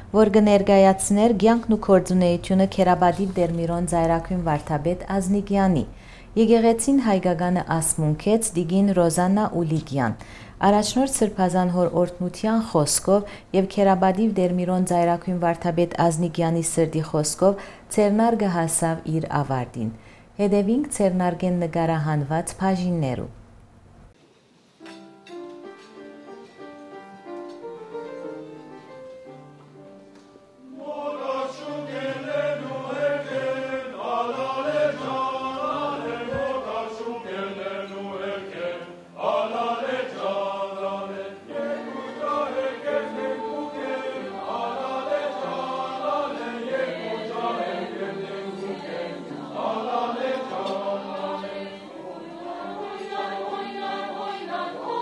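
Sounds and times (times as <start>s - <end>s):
choir singing: 30.6s - 55.0s.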